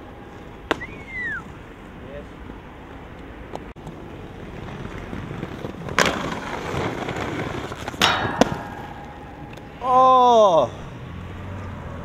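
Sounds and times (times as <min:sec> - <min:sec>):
skateboard wheels rolling: 0:00.0 - 0:12.0
skateboard grinding metal rail: 0:04.7 - 0:11.0
skateboard clacking on railing: 0:05.9 - 0:10.0.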